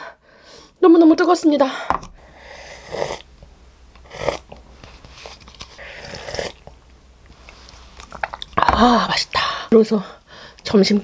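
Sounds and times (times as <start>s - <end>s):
person slurping broth: 2.4s - 3.3s, 4.0s - 6.8s.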